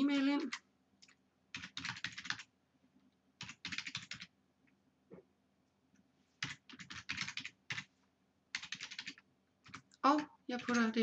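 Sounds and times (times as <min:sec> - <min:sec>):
computer keyboard typing: 0:00.0 - 0:02.6, 0:03.4 - 0:04.4, 0:06.4 - 0:07.9, 0:08.5 - 0:11.0.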